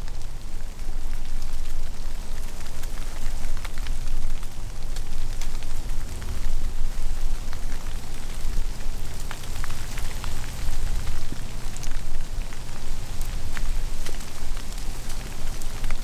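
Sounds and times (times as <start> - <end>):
snow ticking on leaves: 0.0 - 16.0.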